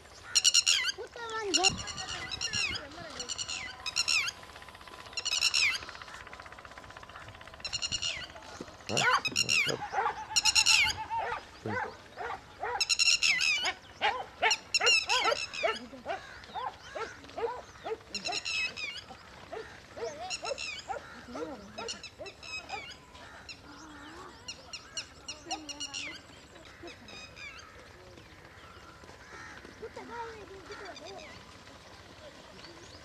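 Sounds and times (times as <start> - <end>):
harsh bird chatter: 0.0 - 33.0
dogs barking and yelping: 7.3 - 23.6.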